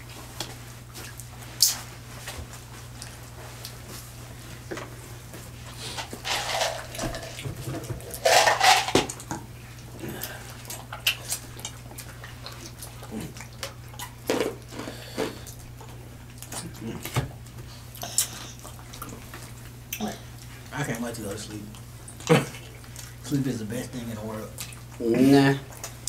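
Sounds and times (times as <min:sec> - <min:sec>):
wet slurping and smacking: 0:09.1 - 0:17.2.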